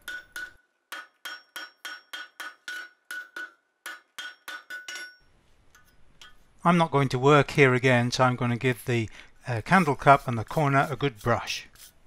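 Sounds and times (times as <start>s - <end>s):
hammer striking hot steel on anvil: 0.0s - 5.2s.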